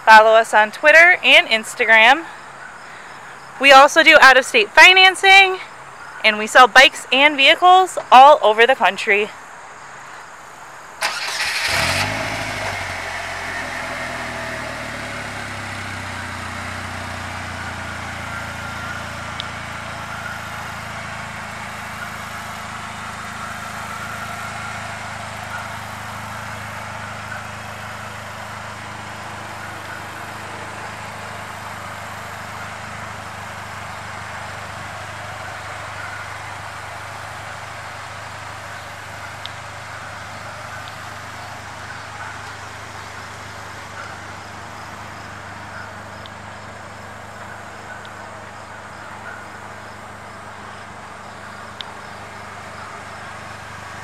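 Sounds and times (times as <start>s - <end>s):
car engine starting and idling: 10.9s - 54.0s.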